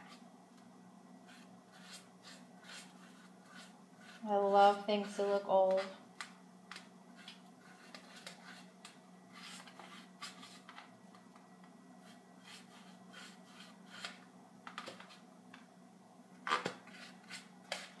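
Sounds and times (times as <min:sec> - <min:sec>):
steady low hum: 0:00.0 - 0:18.0
paintbrush scratching: 0:01.2 - 0:05.9, 0:07.1 - 0:08.7, 0:12.0 - 0:14.2.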